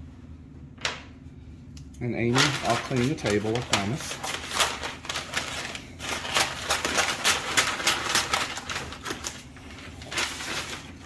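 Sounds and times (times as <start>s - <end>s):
stiff paper crackling: 2.1s - 11.0s
scissors snipping paper: 2.3s - 9.4s.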